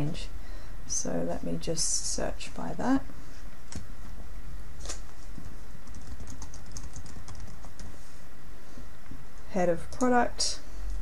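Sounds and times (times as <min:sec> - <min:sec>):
steady low hum: 0:00.0 - 0:11.0
computer keyboard typing: 0:05.8 - 0:07.9.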